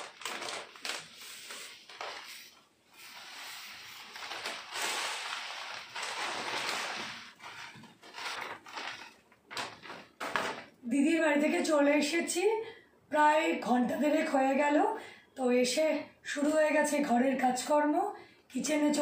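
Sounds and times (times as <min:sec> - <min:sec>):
rice pouring into plastic tub: 0:00.0 - 0:09.0
plastic bag crinkling: 0:00.0 - 0:10.7.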